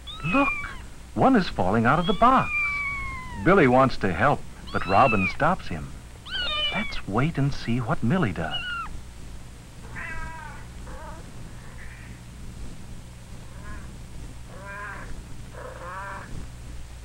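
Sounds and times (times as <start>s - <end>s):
kitten mewing: 0.0s - 0.9s, 1.9s - 3.6s, 4.6s - 5.5s, 6.2s - 7.1s, 8.5s - 8.9s, 9.8s - 12.2s, 13.5s - 16.4s
steady low hum: 0.0s - 17.0s.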